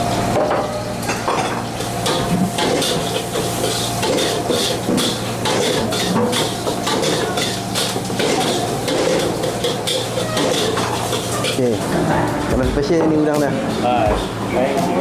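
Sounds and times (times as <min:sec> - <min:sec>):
metal spatula scraping wok: 0:07.0 - 0:12.2.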